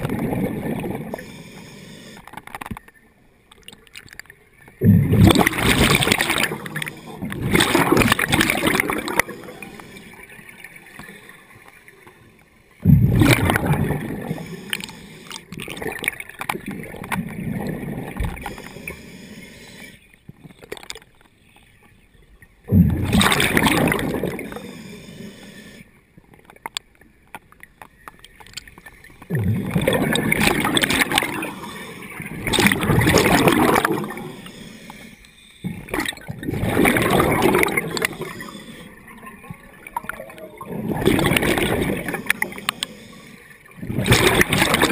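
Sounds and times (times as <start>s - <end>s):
underwater breath bubbles gurgling: 0.0s - 2.7s, 3.5s - 21.0s, 22.6s - 26.0s, 27.9s - 44.9s.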